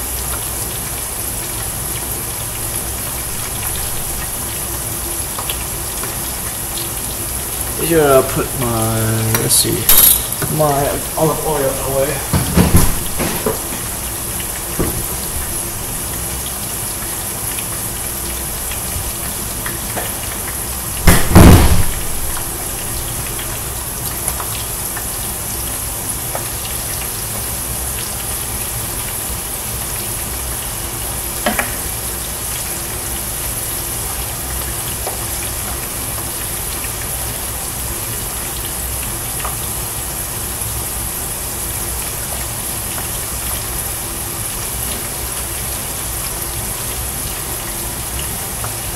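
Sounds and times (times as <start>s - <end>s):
hot oil sizzling: 0.0s - 48.9s
loud bump: 21.0s - 22.0s.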